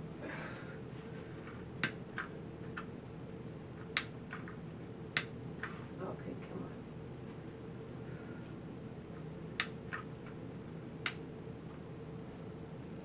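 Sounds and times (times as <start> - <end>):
torch igniter clicks: 1.8 - 2.0, 3.9 - 4.2, 5.2 - 5.4, 9.6 - 10.4, 11.0 - 11.2.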